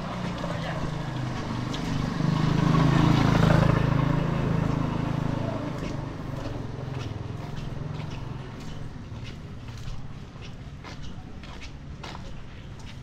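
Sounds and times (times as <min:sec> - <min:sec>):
vehicle engine passing by: 0:00.0 - 0:09.8.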